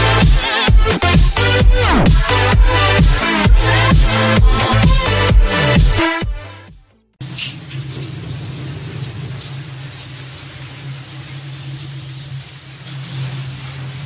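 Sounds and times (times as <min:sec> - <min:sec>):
water running from a tap: 0:07.2 - 0:14.0.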